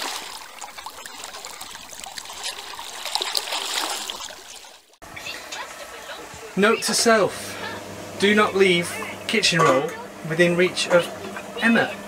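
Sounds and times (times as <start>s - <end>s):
small water splashes: 0.0s - 5.0s
water lapping and trickling: 0.0s - 5.6s.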